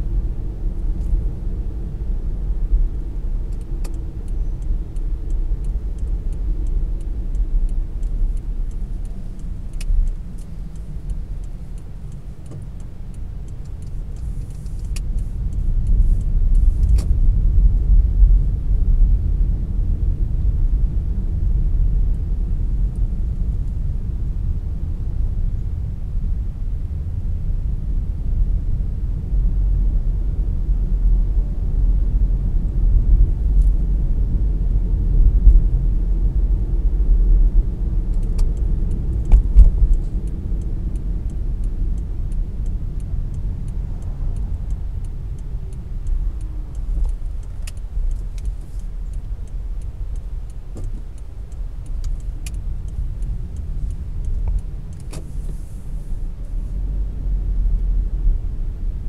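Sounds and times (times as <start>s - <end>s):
car engine and tyres rumbling: 0.0s - 59.0s
light even ticking: 3.5s - 18.0s, 38.1s - 55.3s.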